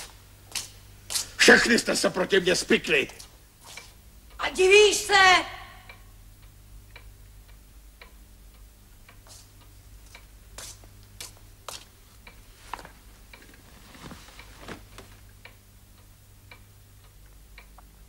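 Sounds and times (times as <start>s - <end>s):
clock ticking: 5.8s - 10.4s.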